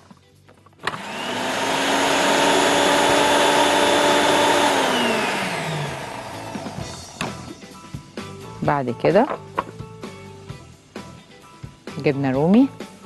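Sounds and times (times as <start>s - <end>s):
food processor motor whining: 0.8s - 7.4s.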